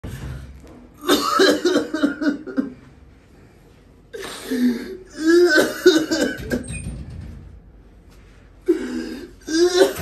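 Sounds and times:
man clearing throat: 1.0s - 2.8s, 5.1s - 6.4s
man coughing: 1.0s - 2.8s, 5.1s - 6.6s.

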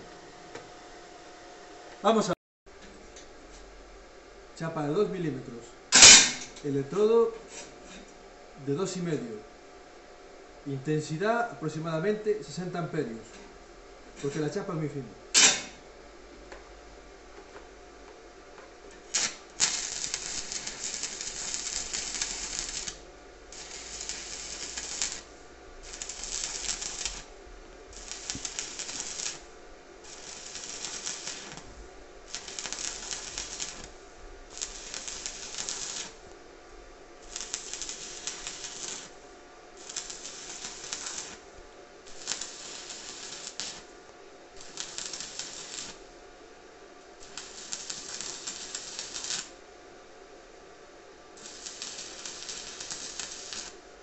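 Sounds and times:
welding arc striking cracks: 5.9s - 6.6s, 15.3s - 15.8s, 19.0s - 27.3s, 27.9s - 31.7s, 32.3s - 36.2s, 37.2s - 39.2s, 39.8s - 41.4s, 42.1s - 43.9s, 44.6s - 46.0s, 47.2s - 49.6s, 51.4s - 53.8s
crackling welding arc: 5.9s - 8.0s, 14.2s - 15.8s, 18.9s - 36.4s, 37.2s - 46.1s, 47.2s - 49.6s, 51.3s - 54.0s.

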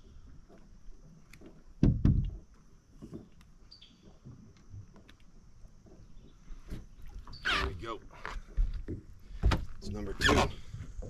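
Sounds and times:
knocks and thumps on boat deck: 1.4s - 3.4s, 5.8s - 11.0s.

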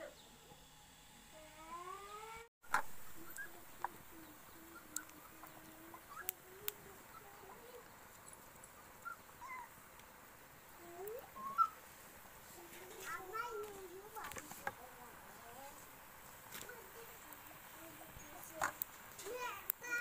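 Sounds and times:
sharp clicks: 4.8s - 6.9s.

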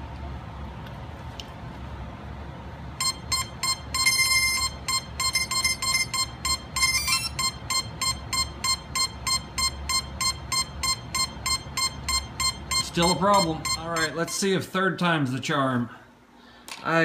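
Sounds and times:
electronic start-up tones: 3.0s - 14.4s
short electronic beeps: 3.0s - 14.5s.

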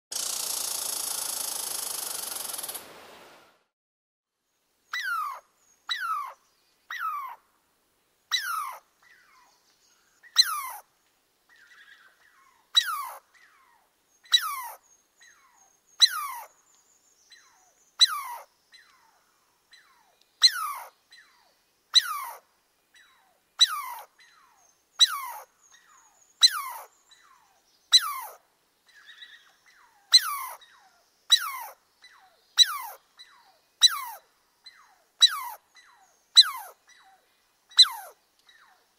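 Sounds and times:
squirrel calling: 4.9s - 7.4s, 8.3s - 9.5s, 10.2s - 10.8s, 11.5s - 16.5s, 17.3s - 22.4s, 23.0s - 38.8s.

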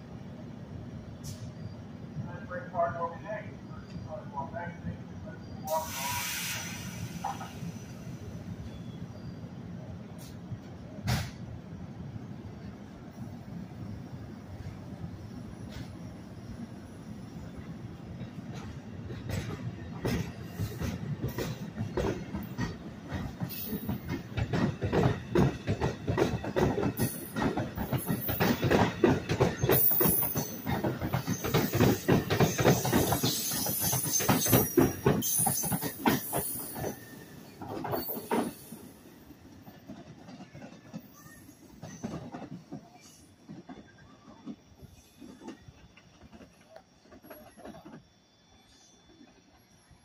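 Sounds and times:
train wheels clacking over rail joints: 18.4s - 38.8s.

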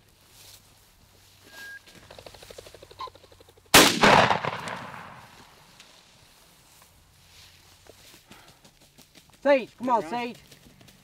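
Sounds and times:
rapid fluttering rattle: 2.0s - 3.7s
shotgun blast echoing: 3.8s - 5.4s.

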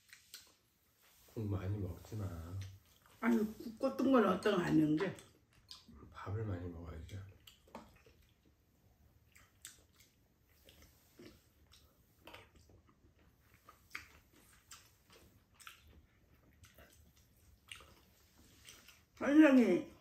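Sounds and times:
chewing and slurping: 0.0s - 1.3s, 4.7s - 6.0s, 7.0s - 19.2s.

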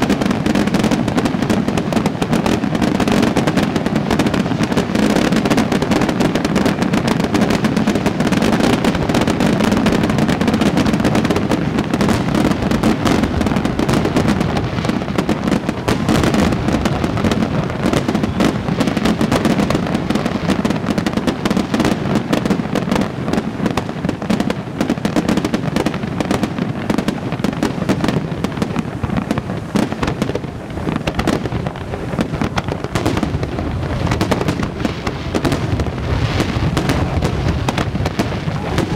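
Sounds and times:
fireworks bangs and crackle: 0.0s - 38.9s.

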